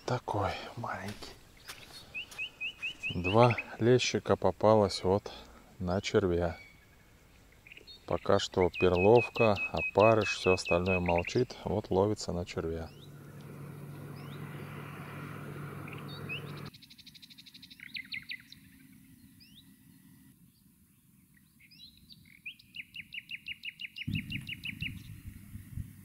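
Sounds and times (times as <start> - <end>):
songbirds chirping and singing: 0.0 - 25.2
motorboat engine humming: 12.3 - 16.7.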